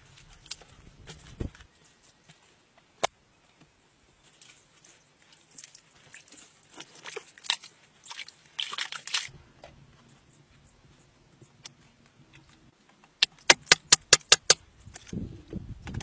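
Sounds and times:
soil and twigs crunching: 0:00.0 - 0:15.2
sharp click: 0:13.2 - 0:14.6.

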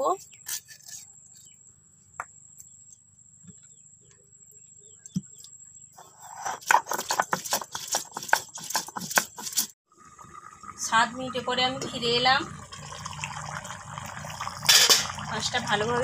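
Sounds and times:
stone grinding and scraping: 0:00.3 - 0:01.1, 0:06.0 - 0:09.8.

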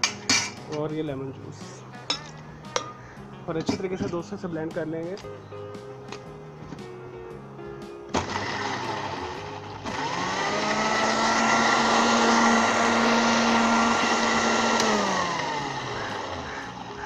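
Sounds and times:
blender motor running: 0:08.1 - 0:17.0.

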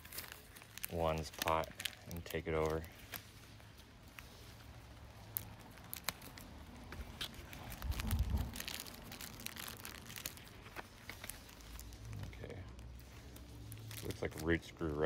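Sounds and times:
plastic wrap crinkling: 0:00.0 - 0:15.0
low rumble: 0:07.7 - 0:10.0.

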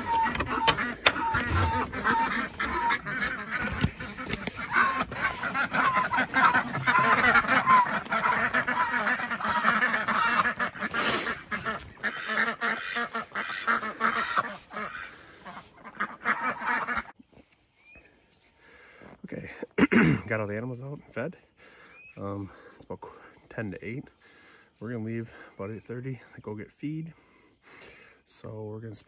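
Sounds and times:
ducks quacking: 0:00.0 - 0:17.3.

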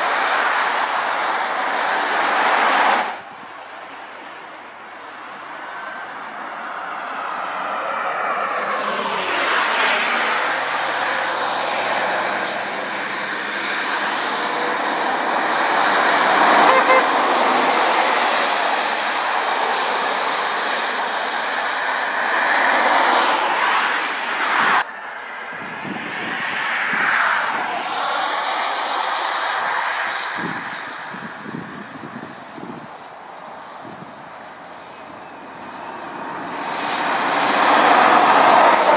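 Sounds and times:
tyre spray hiss on wet road: 0:00.0 - 0:24.8, 0:26.5 - 0:38.9
car passing: 0:00.0 - 0:38.9
traffic noise: 0:00.0 - 0:38.9
lorry engine passing: 0:06.2 - 0:24.3.

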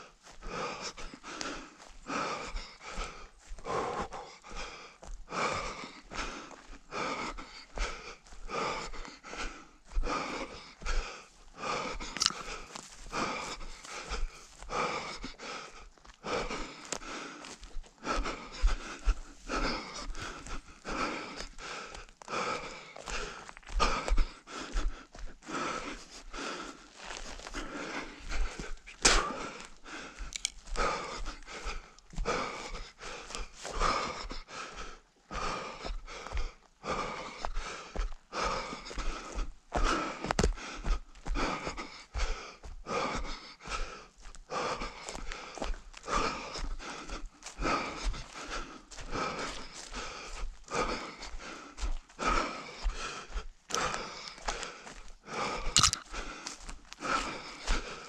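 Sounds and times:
runner panting: 0:00.0 - 0:58.0.

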